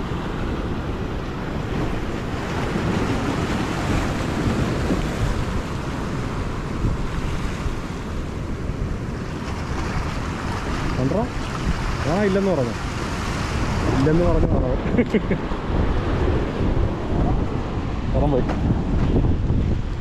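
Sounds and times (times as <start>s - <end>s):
sea waves washing in: 0.0s - 20.0s
wind buffeting microphone: 0.0s - 20.0s.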